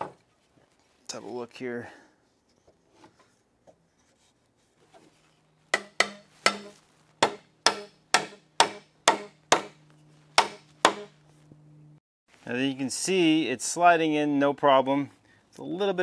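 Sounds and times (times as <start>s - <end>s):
mallet knocking wood joint: 5.7s - 9.8s, 10.4s - 11.1s.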